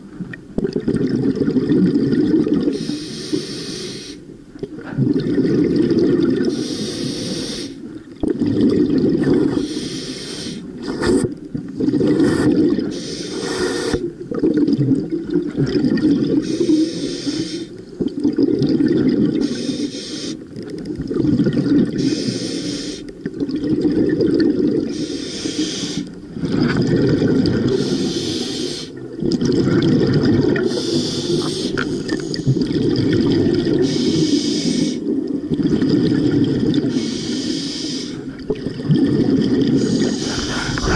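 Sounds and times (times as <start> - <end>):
bubbling exhale underwater: 0.6 - 3.5, 4.6 - 7.6, 8.2 - 9.9, 10.7 - 40.9
regulator hissing inhale: 2.7 - 4.2, 6.5 - 7.8, 9.5 - 11.2, 12.2 - 14.1, 16.4 - 17.8, 19.4 - 20.4, 22.0 - 23.1, 24.9 - 26.2, 27.7 - 29.0, 30.7 - 32.6, 33.8 - 35.0, 36.9 - 38.3, 39.8 - 40.9.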